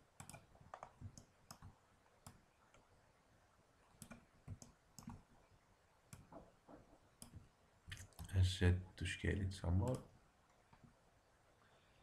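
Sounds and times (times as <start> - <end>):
mouse and keyboard clicks: 0.2 - 2.8, 4.0 - 5.2.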